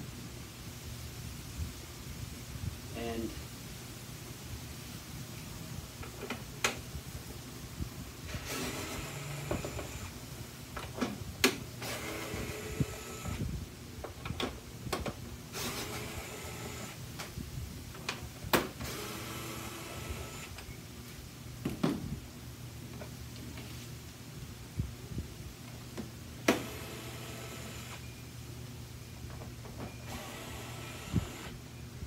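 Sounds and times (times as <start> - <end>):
cordless screwdriver whirring: 30.1 - 31.6.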